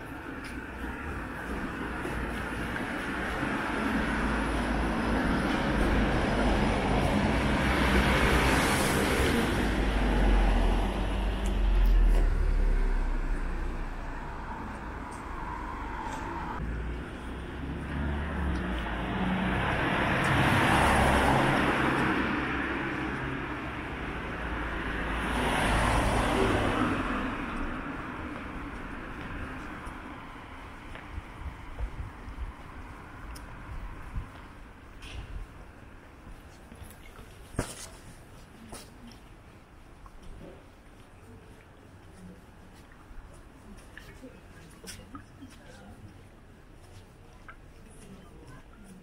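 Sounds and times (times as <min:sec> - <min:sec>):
cars passing: 0:00.0 - 0:36.3.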